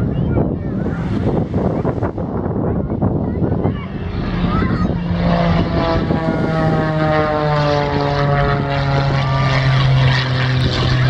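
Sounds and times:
propeller plane flying past: 0.0 - 11.0.

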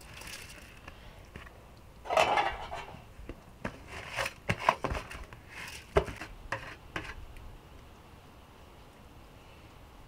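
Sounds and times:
crinkly rustle: 0.0 - 7.2.

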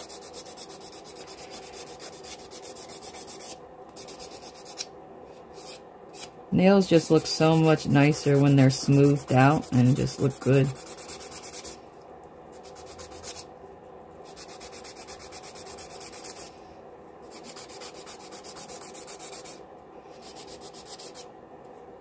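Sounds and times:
nail file rubbing on nail: 0.0 - 4.9, 7.6 - 11.8, 12.5 - 13.5, 14.2 - 16.5, 17.3 - 21.3.

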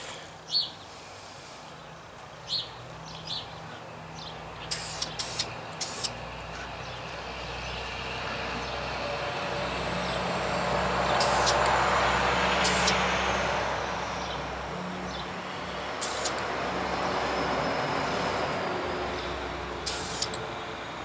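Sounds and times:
low engine hum: 3.0 - 21.0
short hisses: 4.7 - 6.2, 11.2 - 11.7, 12.6 - 13.1, 15.9 - 16.5, 19.8 - 20.4
vehicle rushing past: 5.0 - 21.0.

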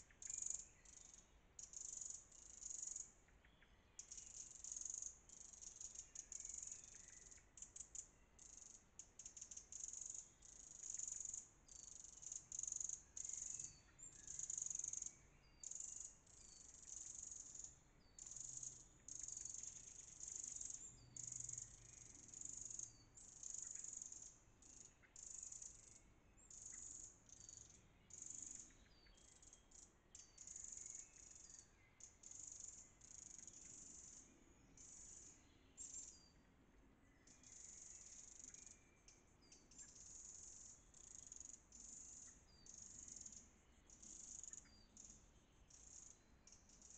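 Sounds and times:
wren alarm call rattles: 4.0 - 34.2.

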